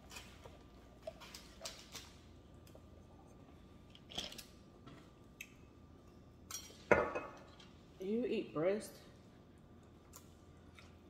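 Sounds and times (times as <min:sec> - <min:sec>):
soft crunches and chewing: 0:09.4 - 0:11.0.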